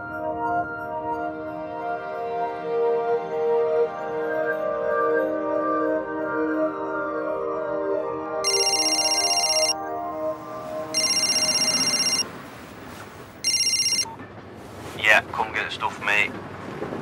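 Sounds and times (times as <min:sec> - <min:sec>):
telephone ringing electronic trill: 0:08.5 - 0:09.8, 0:11.0 - 0:12.3, 0:13.4 - 0:14.1.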